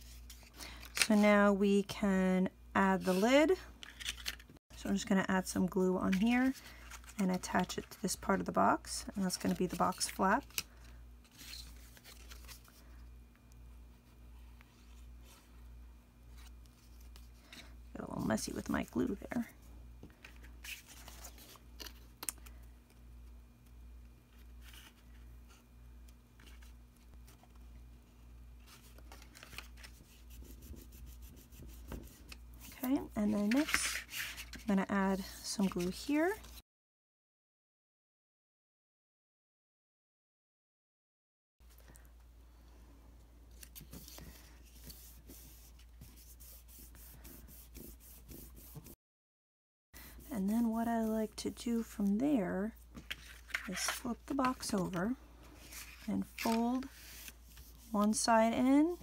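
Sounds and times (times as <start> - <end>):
paper rustling and rubbing: 9.0 - 12.9, 20.2 - 22.0, 28.6 - 36.6, 43.5 - 49.0, 52.9 - 59.0
hands rubbing cardstock: 43.9 - 49.0.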